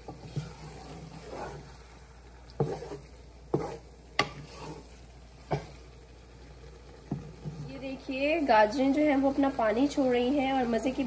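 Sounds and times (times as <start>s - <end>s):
faint sizzle: 0.0s - 11.0s
wooden spatula stirring: 0.0s - 11.0s
spatula knocking against pot: 2.6s - 4.4s.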